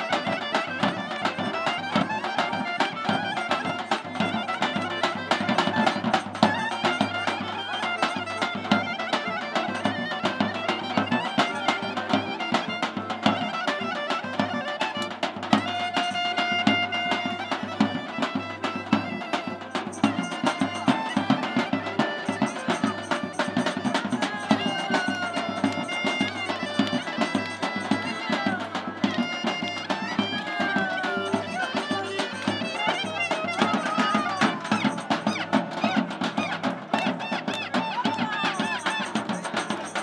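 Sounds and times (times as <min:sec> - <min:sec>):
accordion: 0:00.0 - 0:40.0
clarinet fast melody: 0:00.0 - 0:40.0
steady drum beat: 0:14.4 - 0:37.2, 0:38.2 - 0:40.0.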